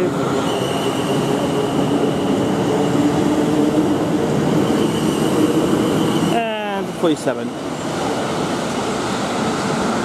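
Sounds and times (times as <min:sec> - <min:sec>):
wheels rumbling on rail: 0:00.0 - 0:10.0
electric train motor whine: 0:04.4 - 0:06.4.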